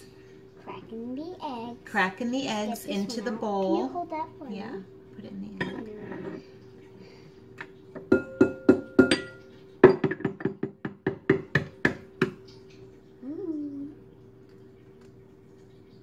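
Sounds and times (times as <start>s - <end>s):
egg tapping on glass bowl: 8.0s - 12.4s.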